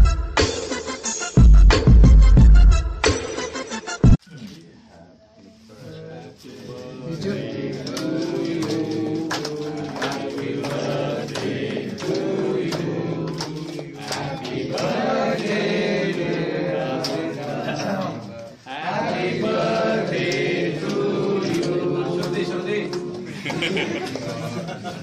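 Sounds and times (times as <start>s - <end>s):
group of people singing: 5.6s - 24.9s
hand clapping: 7.7s - 18.1s, 19.0s - 24.4s.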